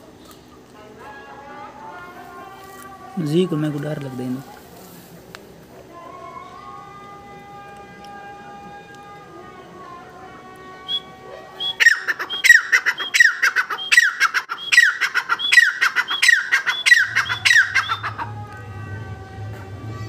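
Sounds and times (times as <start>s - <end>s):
francolin calling: 10.8s - 18.4s.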